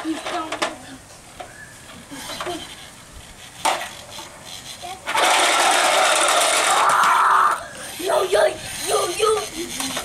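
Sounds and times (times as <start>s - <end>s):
toy car rattling on concrete: 0.0s - 0.9s, 2.1s - 10.0s.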